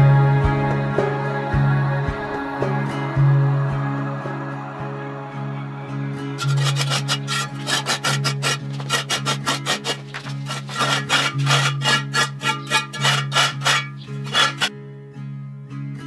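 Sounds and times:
trowel scraping mortar: 6.4s - 14.7s.

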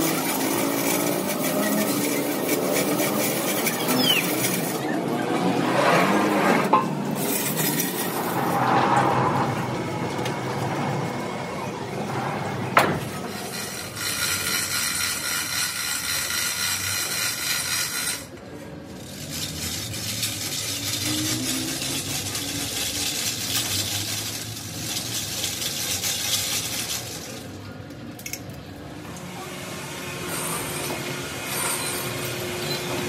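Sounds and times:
metal scraping and clinking: 0.0s - 4.9s, 6.5s - 9.0s.

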